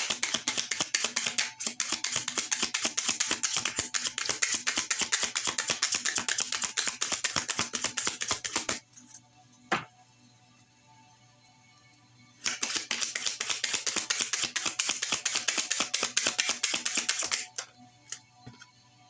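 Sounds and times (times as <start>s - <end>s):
cards being shuffled: 0.0s - 8.8s, 12.4s - 17.6s.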